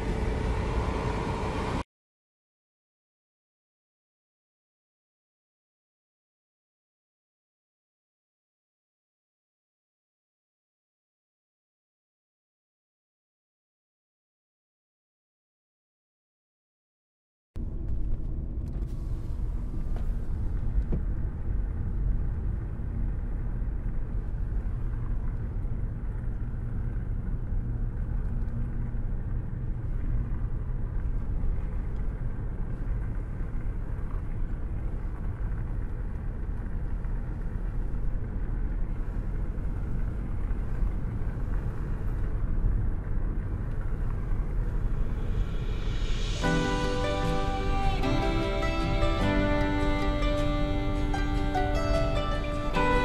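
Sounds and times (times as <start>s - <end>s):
car engine rumble inside cabin: 0.0s - 1.8s, 17.6s - 53.0s
tyres on tarmac: 17.6s - 53.0s.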